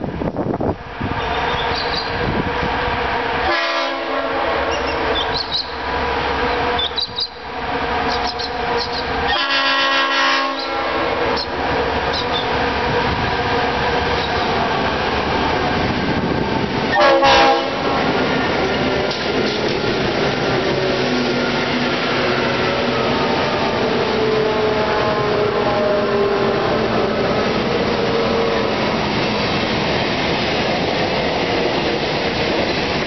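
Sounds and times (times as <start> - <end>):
diesel locomotives running: 0.0 - 33.0
train horn blasts: 1.2 - 14.5, 16.9 - 18.0, 22.6 - 26.8.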